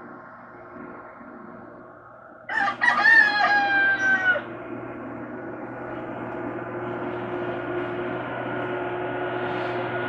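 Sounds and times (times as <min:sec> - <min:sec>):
steady low hum: 0:00.0 - 0:10.0
rooster crowing: 0:02.5 - 0:04.6.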